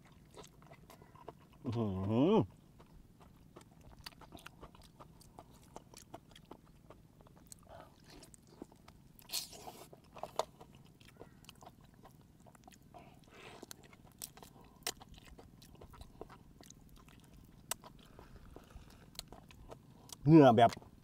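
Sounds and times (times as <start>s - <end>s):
chewing with wet mouth clicks: 0.0s - 21.0s.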